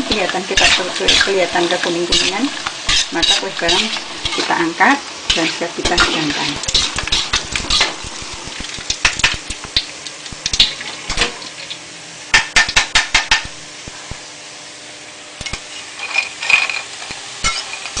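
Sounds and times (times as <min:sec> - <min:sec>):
utensils scraping a wok: 0:00.0 - 0:09.6, 0:15.4 - 0:18.0.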